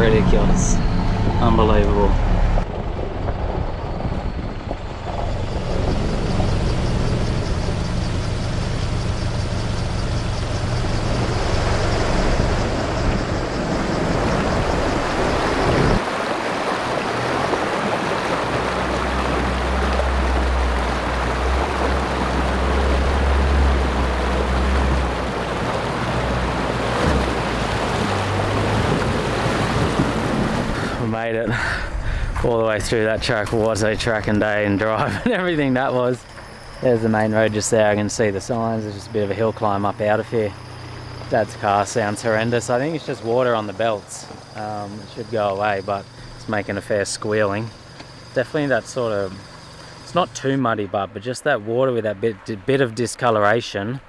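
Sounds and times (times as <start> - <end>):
vehicle engine running low: 0.0 - 54.0
river water rushing: 6.0 - 31.2, 33.6 - 50.4.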